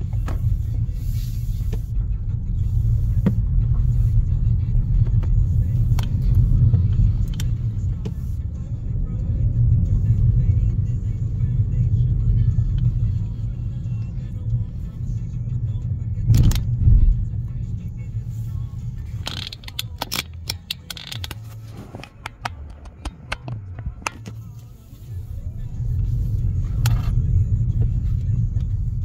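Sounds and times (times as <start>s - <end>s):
car engine and road rumble: 0.0s - 29.0s
sharp clicks and knocks: 16.3s - 16.8s, 19.1s - 24.4s.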